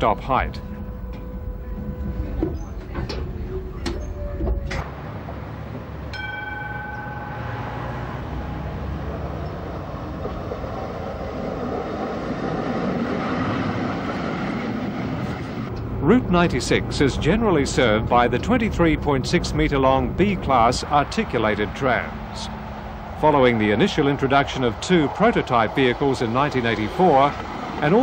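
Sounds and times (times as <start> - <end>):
approaching tram rushing: 0.0 - 28.0
tram rumbling on rails: 0.0 - 28.0
short ringing tone: 6.1 - 9.0.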